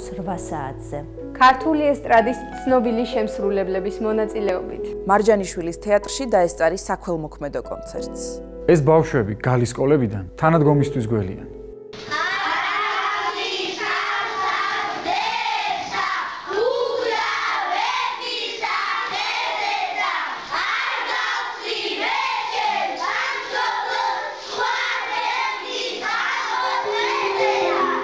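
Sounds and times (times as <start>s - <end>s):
children singing together: 12.0s - 28.0s.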